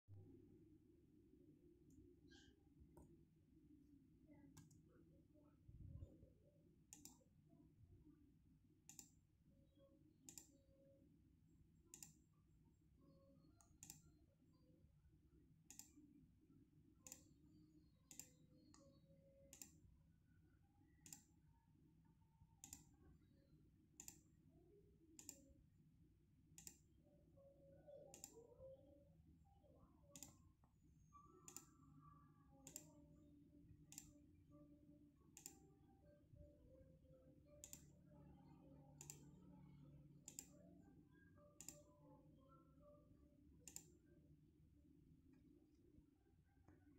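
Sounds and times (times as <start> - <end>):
low steady hum: 0.1 - 46.9
computer mouse clicks: 4.5 - 4.9, 6.9 - 7.4, 8.8 - 9.3, 10.2 - 10.6, 11.9 - 12.3, 13.6 - 14.2, 15.6 - 16.0, 17.0 - 19.9, 20.9 - 21.5, 22.6 - 23.0, 24.0 - 24.4, 25.2 - 25.5, 26.6 - 27.0, 28.1 - 28.5, 30.1 - 30.5, 31.3 - 31.8, 32.6 - 33.2, 33.8 - 34.3, 35.3 - 35.7, 37.6 - 38.0, 39.0 - 39.4, 40.1 - 40.6, 41.6 - 42.0, 43.6 - 44.1.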